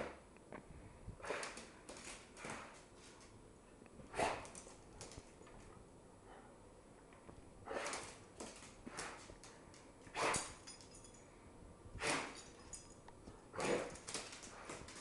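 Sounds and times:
dog grumbling and huffing: 13.5 - 14.1.

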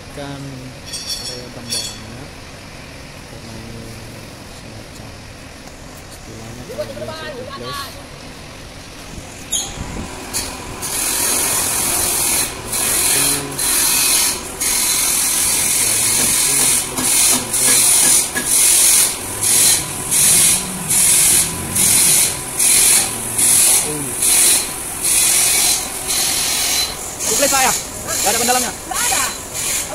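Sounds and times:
abrasive pad rasping on steel: 9.4 - 29.9.

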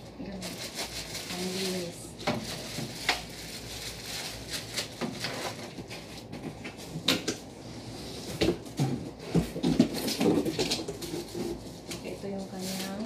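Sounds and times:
plastic packaging crinkling: 0.1 - 7.3.

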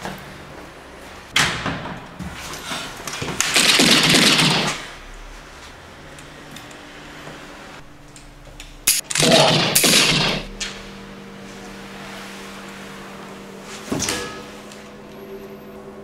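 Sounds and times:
pistol shots: 3.5 - 4.8, 8.9 - 10.5
faint steady hum: 4.0 - 16.0.

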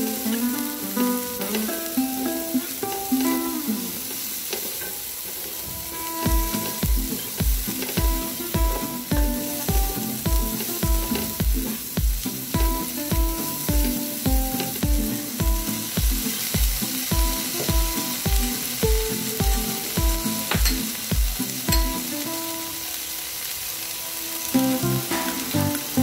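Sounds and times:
vegetables sizzling in frying pan: 0.0 - 26.0
background music with steady beat: 5.8 - 22.7, 24.0 - 26.0.

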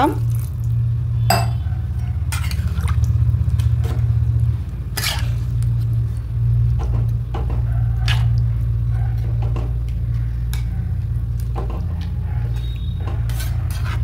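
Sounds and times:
steady low hum: 0.2 - 12.3
spatula stirring thick curry: 12.6 - 14.0
spatula scraping pan: 13.2 - 14.0.

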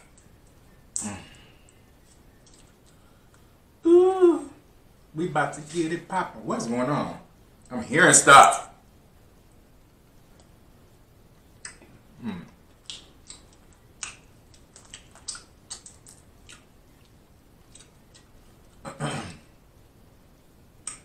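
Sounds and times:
mouth sounds: 0.9 - 1.7, 3.8 - 7.0, 11.6 - 13.4.

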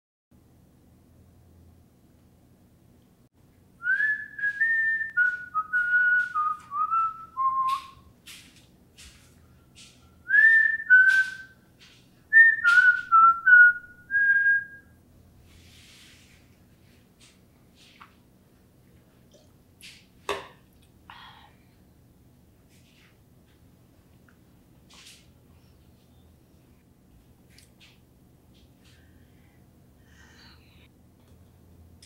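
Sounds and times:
person whistling a tune: 3.8 - 8.0, 10.3 - 11.6, 12.3 - 14.9.

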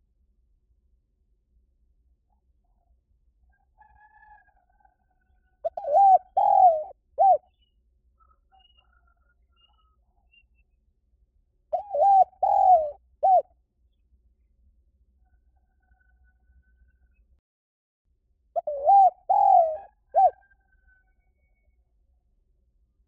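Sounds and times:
dove cooing: 5.6 - 7.5, 11.7 - 13.5, 18.6 - 20.5
faint bird calls: 5.6 - 10.6, 11.7 - 13.4, 18.6 - 21.6.

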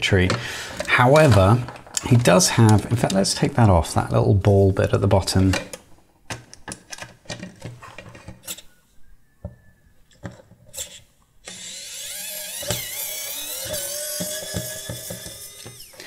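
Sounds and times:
plastic parts clicking: 5.5 - 8.7, 9.4 - 16.0
electric screwdriver whining: 11.4 - 16.0.

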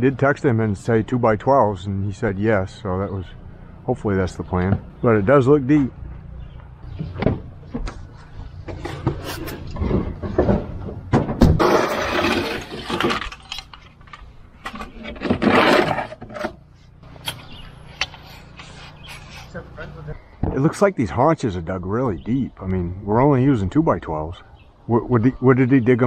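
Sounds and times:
scraping and rustling: 7.0 - 19.6.

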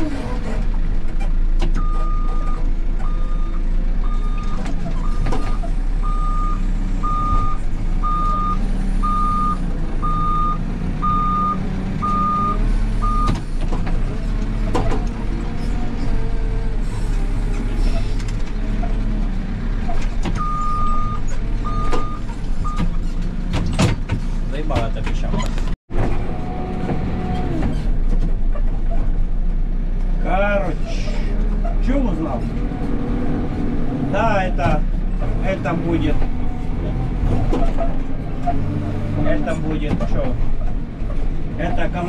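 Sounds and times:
backhoe engine running: 0.0 - 42.0
reversing alarm beeping: 1.8 - 13.4, 20.4 - 22.8.

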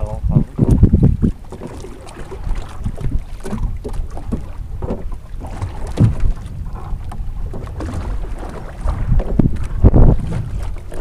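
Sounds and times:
wind buffeting microphone: 0.0 - 11.0
low knocks: 2.9 - 10.7.

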